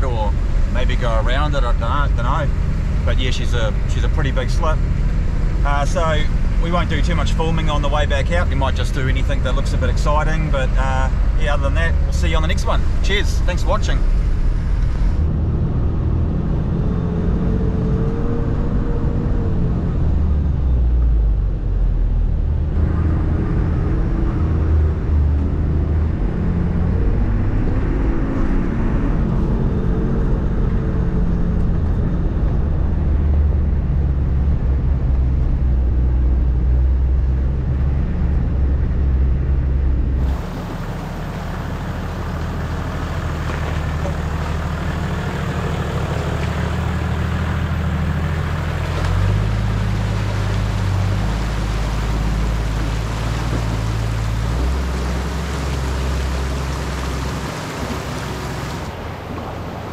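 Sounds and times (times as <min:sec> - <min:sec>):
vehicle driving on gravel: 0:22.7 - 0:59.9
engine crawling with hiss: 0:40.2 - 0:59.9.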